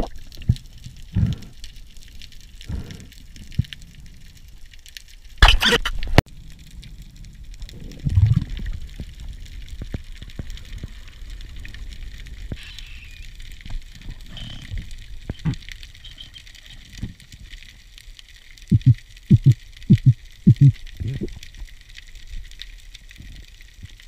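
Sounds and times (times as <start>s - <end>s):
low rumble: 6.3s - 15.6s, 18.7s - 21.4s
muffled underwater murmur: 18.7s - 21.4s.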